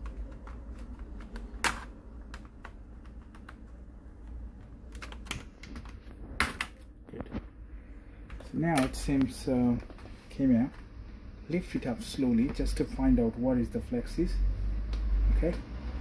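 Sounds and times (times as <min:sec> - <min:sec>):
laptop keyboard keys clicking: 0:00.0 - 0:06.8.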